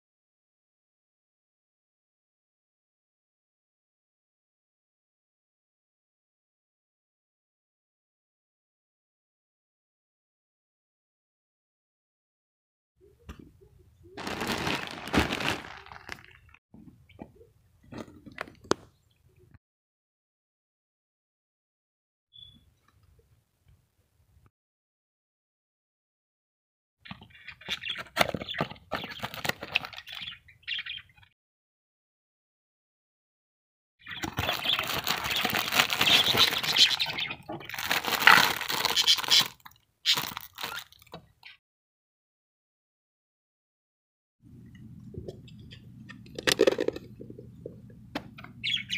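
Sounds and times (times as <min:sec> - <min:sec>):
packaging crunching: 0:14.2 - 0:16.6, 0:34.3 - 0:41.0
plastic wrapping crinkling: 0:14.2 - 0:16.6, 0:34.4 - 0:41.0.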